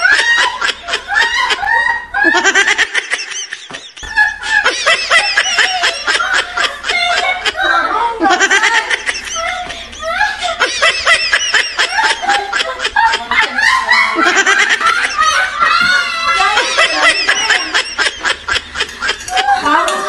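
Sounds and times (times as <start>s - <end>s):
women laughing: 0.0s - 20.0s
women speaking: 5.1s - 10.6s, 11.9s - 18.2s, 19.3s - 20.0s.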